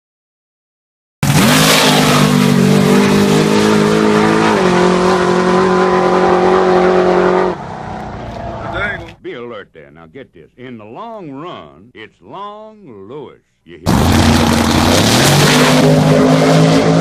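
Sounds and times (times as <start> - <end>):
drag racing engines at full throttle: 1.2 - 9.2, 13.9 - 17.0.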